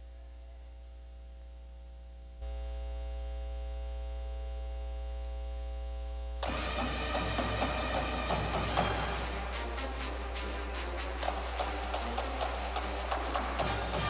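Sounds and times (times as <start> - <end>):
electrical mains hum: 0.0 - 14.0
marching band playing: 6.4 - 14.0.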